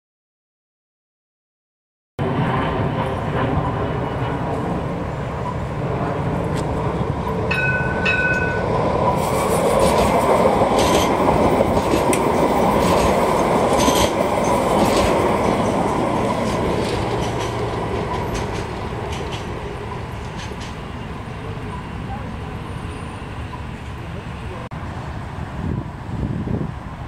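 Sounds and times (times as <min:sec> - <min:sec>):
tram wheels rumbling on rail: 0:02.2 - 0:27.0.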